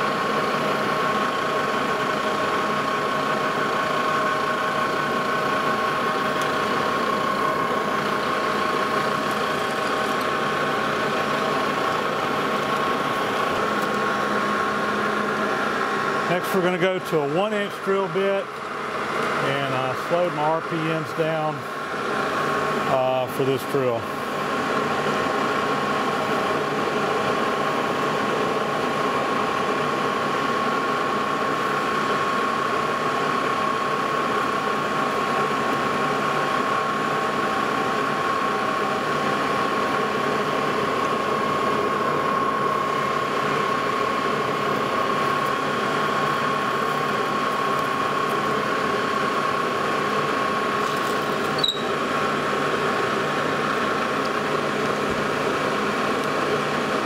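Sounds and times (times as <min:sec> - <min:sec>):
lathe running with whine: 0:00.0 - 0:57.0.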